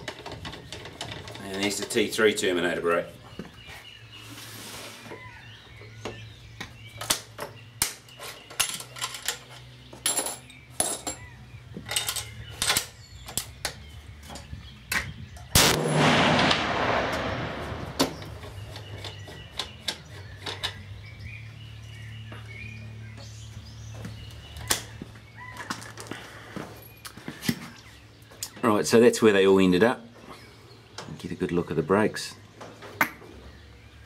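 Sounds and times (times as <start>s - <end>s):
rifle shot: 15.6s - 18.8s.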